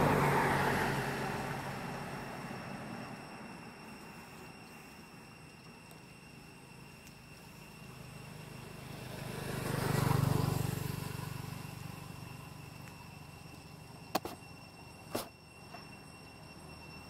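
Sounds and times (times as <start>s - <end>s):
vehicle passing by: 0.0s - 3.7s, 8.0s - 13.8s.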